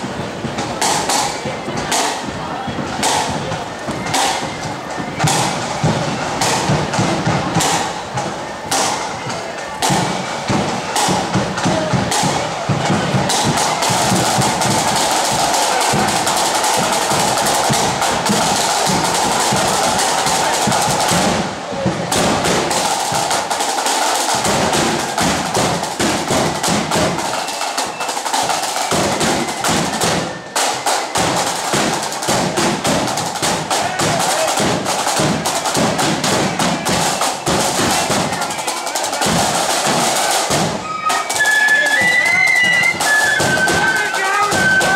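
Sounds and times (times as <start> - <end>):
snare drum strokes and rolls: 0.0 - 44.9.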